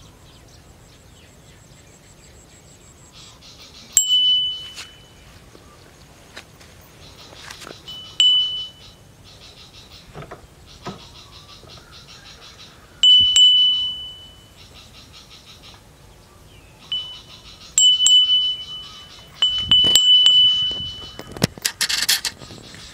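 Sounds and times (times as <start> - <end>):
small high-pitched bell ringing: 4.0 - 5.2, 7.9 - 8.9, 13.0 - 14.6, 16.9 - 21.4.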